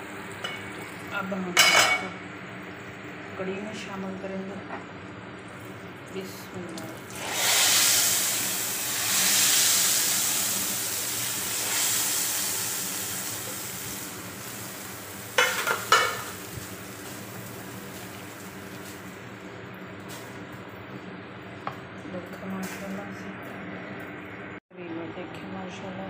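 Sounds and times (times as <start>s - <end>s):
hot oil sizzling in a pot: 5.6s - 19.3s.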